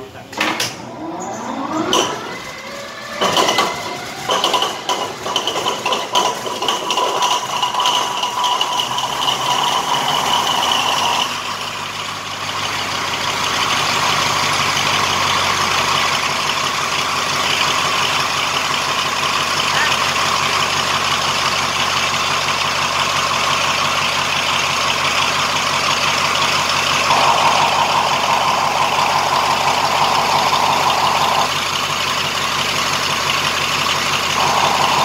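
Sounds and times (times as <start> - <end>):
whine: 0.0 - 12.4, 25.7 - 32.5, 34.2 - 35.0
diesel engine starting up: 0.0 - 35.0.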